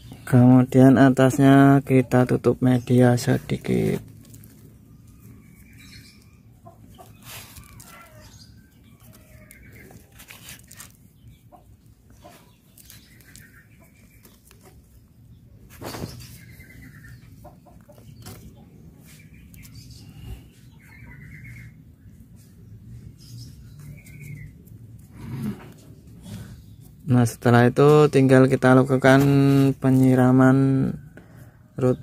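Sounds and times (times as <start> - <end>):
chickens clucking: 4.6 - 22.7.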